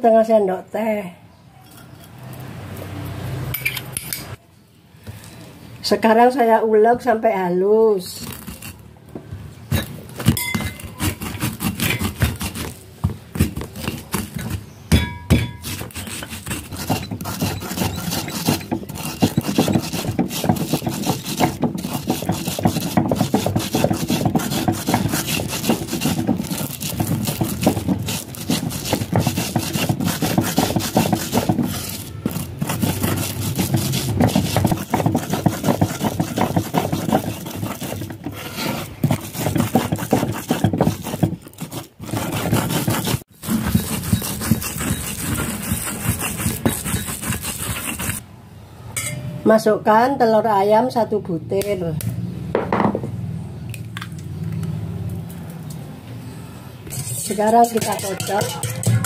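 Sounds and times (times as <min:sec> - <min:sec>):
pestle crushing spices: 0:08.2 - 0:48.2, 0:56.8 - 0:59.0
pestle grinding on stone mortar: 0:08.2 - 0:48.2, 0:56.8 - 0:59.0.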